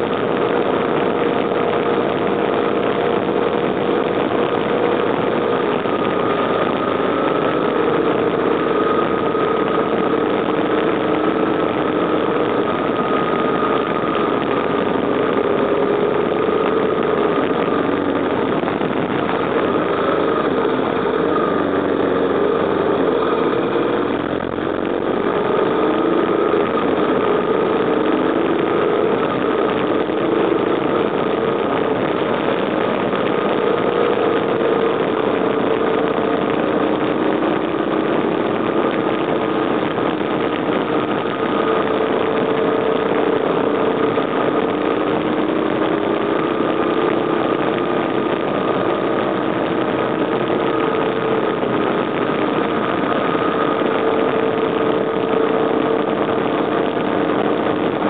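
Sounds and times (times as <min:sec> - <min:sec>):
motorcycle engine running: 0:00.0 - 0:58.0
road and wind noise: 0:00.0 - 0:58.0.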